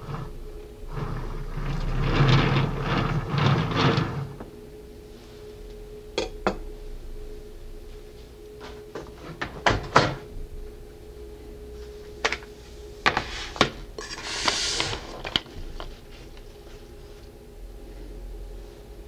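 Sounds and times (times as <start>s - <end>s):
sliding scrape: 0.0s - 4.4s, 13.1s - 17.3s.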